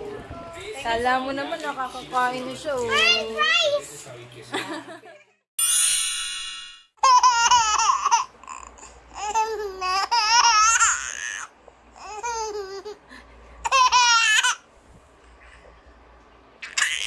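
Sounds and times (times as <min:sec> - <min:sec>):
baby laughing: 0:07.0 - 0:11.4, 0:13.6 - 0:14.6.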